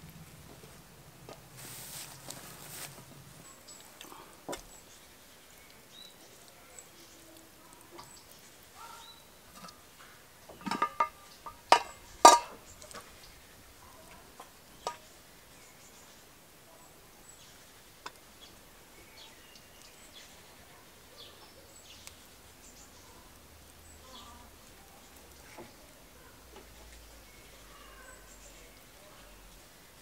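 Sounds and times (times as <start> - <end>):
metal pot lid clinking: 10.6 - 12.6.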